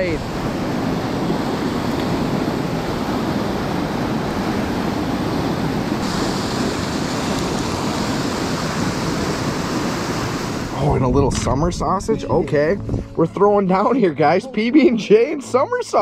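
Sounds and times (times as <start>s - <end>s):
river rapids rushing: 0.0s - 10.8s.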